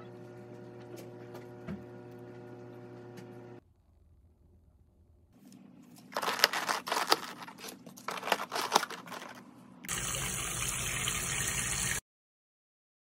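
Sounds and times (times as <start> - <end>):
plastic containers clicking and crinkling: 6.0 - 9.4
tap water running into pot: 9.9 - 12.0.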